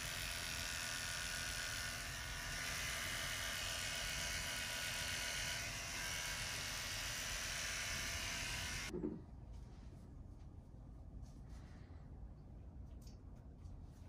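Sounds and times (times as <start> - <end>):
electric hair clippers running: 0.0 - 8.9.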